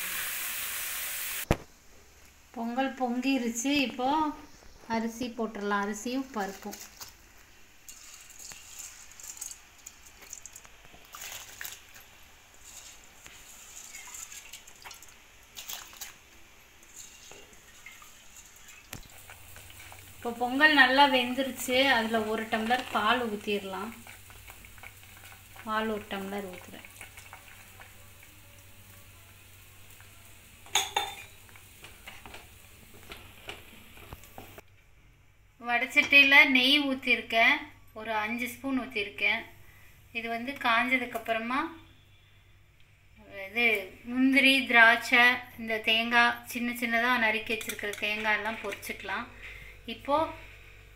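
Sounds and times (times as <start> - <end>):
rice simmering in clay pot: 0.0 - 34.8
milk pouring: 7.9 - 21.0, 21.6 - 29.0
ladle clinking against pot: 30.6 - 31.4.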